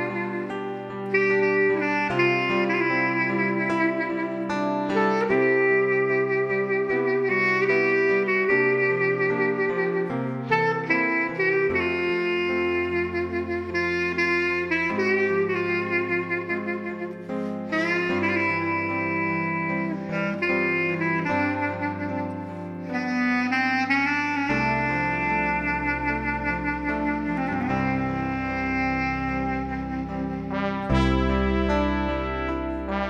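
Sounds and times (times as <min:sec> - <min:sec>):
slow instrumental melody: 0:00.0 - 0:33.0
low bass notes: 0:24.2 - 0:33.0.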